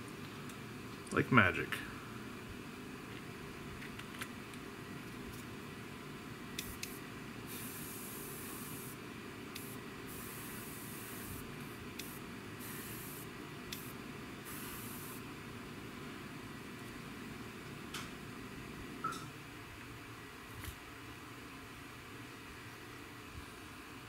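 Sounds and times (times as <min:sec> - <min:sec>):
airbrush hissing: 0:06.6 - 0:09.0, 0:09.6 - 0:15.2.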